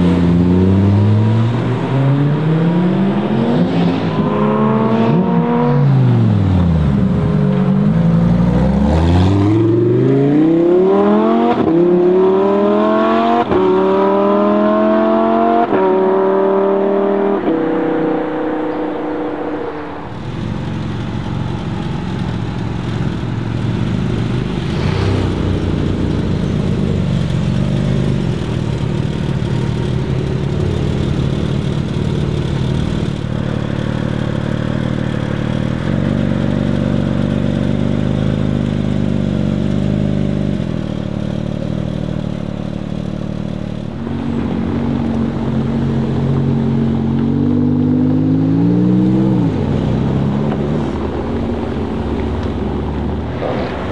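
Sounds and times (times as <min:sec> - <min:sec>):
car engine accelerating through gears: 0:00.0 - 0:53.9
rough steady engine sound: 0:20.1 - 0:47.2.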